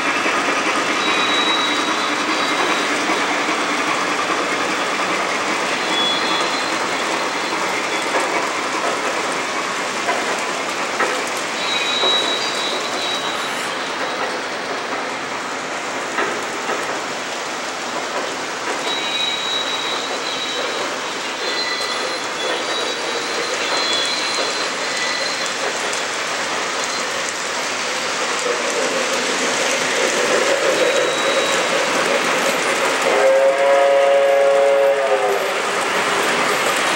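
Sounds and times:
model train cars rolling on track: 0:00.0 - 0:36.9
faint high wheel squeal: 0:00.9 - 0:03.3, 0:05.7 - 0:08.2, 0:11.6 - 0:14.6, 0:18.8 - 0:25.7, 0:29.6 - 0:31.9.

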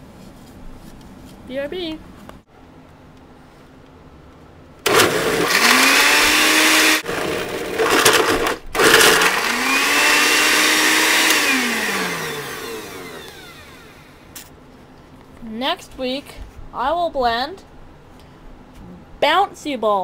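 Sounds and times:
blender motor whining: 0:04.9 - 0:14.3.

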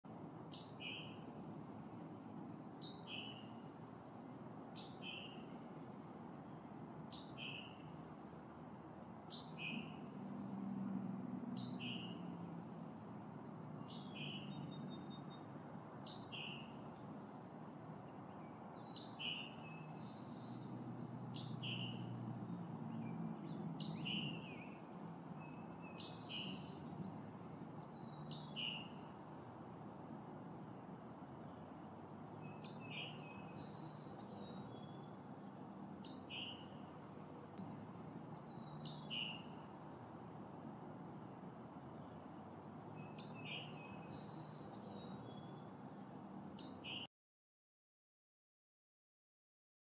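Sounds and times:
faint bird chirps: 0:12.9 - 0:15.5, 0:18.3 - 0:22.0, 0:23.6 - 0:29.1, 0:32.3 - 0:35.2, 0:37.6 - 0:39.7, 0:42.9 - 0:45.7.

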